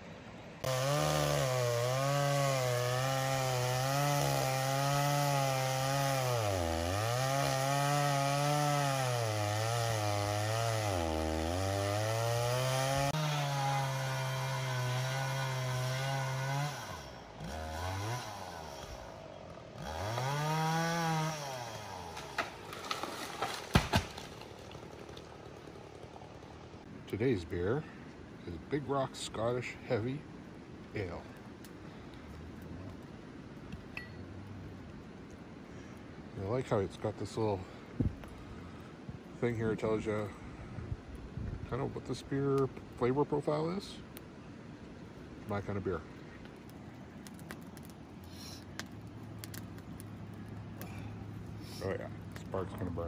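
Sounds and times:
chainsaw cutting wood: 0:00.6 - 0:26.3.

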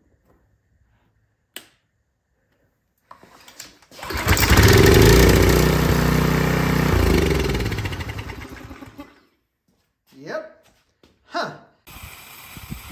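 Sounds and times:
click: 0:01.5 - 0:01.8
pressure washer engine running: 0:04.0 - 0:09.0.

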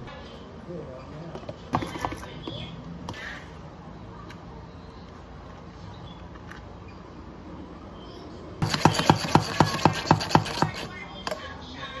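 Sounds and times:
milk frother rattling rasp: 0:08.6 - 0:11.0.

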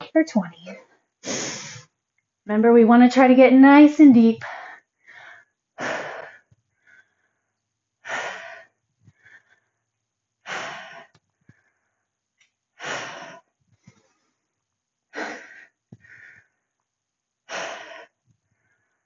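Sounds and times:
woman breathing hard: 0:04.4 - 0:12.1, 0:12.8 - 0:14.2, 0:15.1 - 0:16.6, 0:17.5 - 0:19.0.

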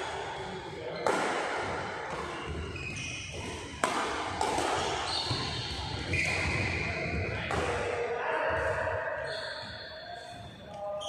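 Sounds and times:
racket hitting shuttlecock: 0:01.0 - 0:06.6, 0:07.5 - 0:07.9
shoes squeaking on court floor: 0:02.0 - 0:07.6, 0:08.6 - 0:11.0.

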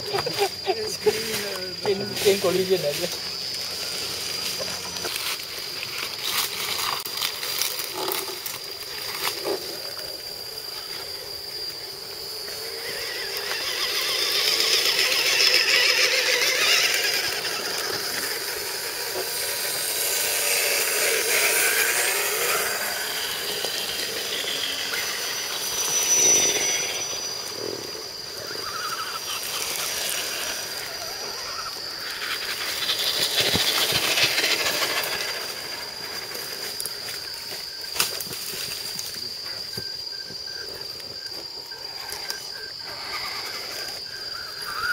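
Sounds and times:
electric whine of toy trucks: 0:00.0 - 0:44.9
high-pitched insect drone: 0:00.0 - 0:44.9.

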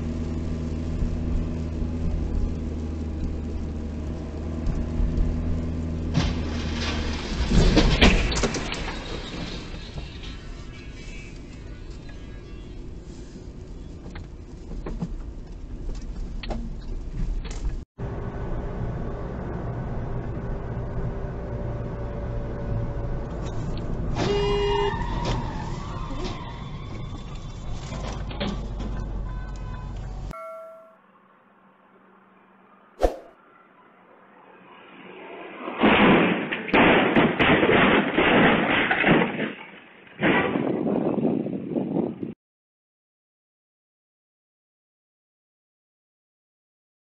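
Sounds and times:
car engine and tyre drone: 0:00.0 - 0:30.4, 0:31.0 - 0:36.3
car horn: 0:24.2 - 0:25.0, 0:29.2 - 0:31.0.

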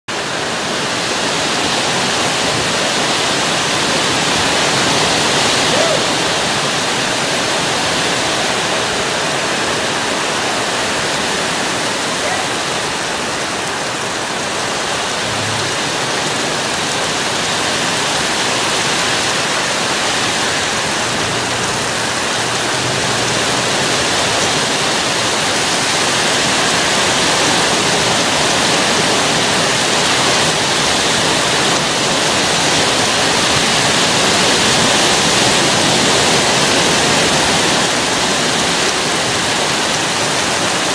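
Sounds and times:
heavy rain pouring: 0:00.1 - 0:40.9.

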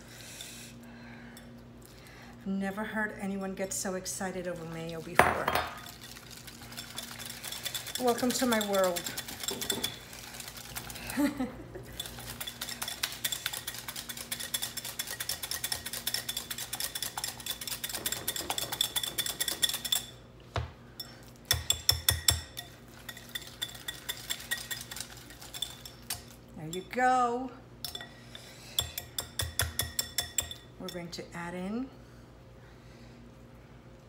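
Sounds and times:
whisk clinking against bowl: 0:05.5 - 0:10.9, 0:11.9 - 0:20.2, 0:21.0 - 0:26.9, 0:27.8 - 0:31.1
whisk clicking against glass bowl: 0:06.8 - 0:10.0, 0:11.9 - 0:20.1, 0:21.5 - 0:26.8, 0:28.8 - 0:30.6.

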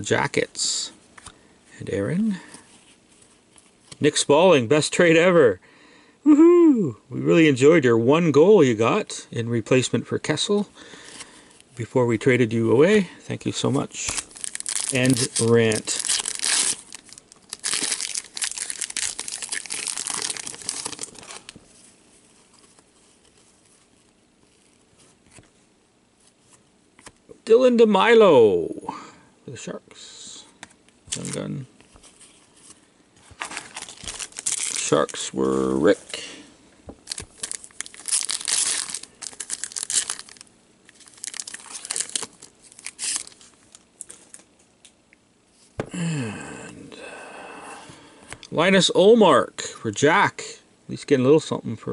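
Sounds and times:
card pack wrapper tearing: 0:14.0 - 0:21.6, 0:31.1 - 0:31.5, 0:33.4 - 0:35.3, 0:37.0 - 0:44.4.

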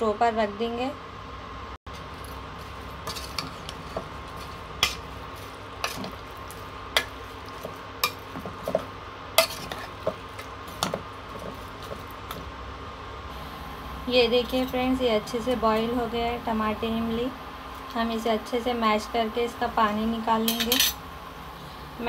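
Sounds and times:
steady low hum: 0:00.0 - 0:22.0
metal spoon stirring in a pot: 0:02.0 - 0:12.4.

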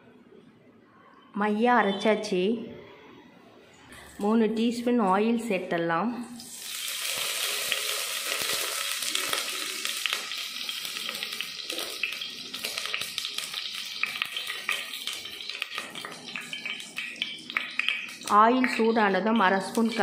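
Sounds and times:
oil sizzling and crackling: 0:06.4 - 0:20.0.

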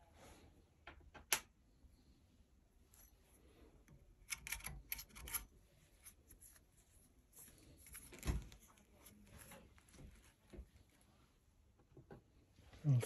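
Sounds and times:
metal pin punch clicking: 0:04.2 - 0:05.4.

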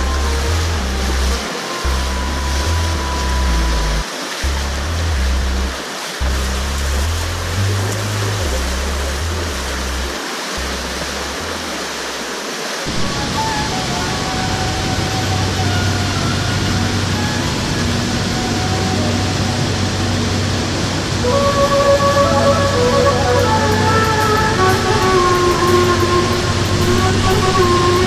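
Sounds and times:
background music: 0:00.0 - 0:05.8, 0:12.9 - 0:28.0
river water rushing over boulders: 0:00.0 - 0:28.0.

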